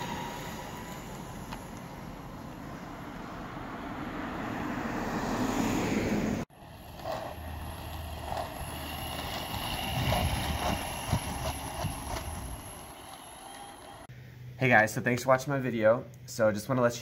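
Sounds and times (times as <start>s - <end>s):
road rumble: 0.0s - 14.1s
wind on microphone: 9.4s - 12.9s.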